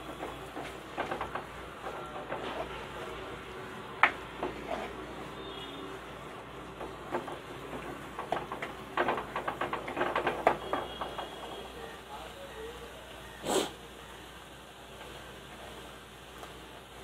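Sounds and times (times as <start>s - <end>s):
spatula scraping clay pot: 4.5s - 5.2s
spatula knocking pot: 6.7s - 11.6s.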